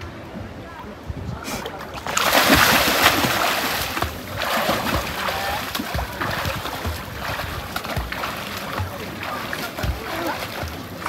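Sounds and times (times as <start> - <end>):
swimmer splashing water: 1.7 - 11.0.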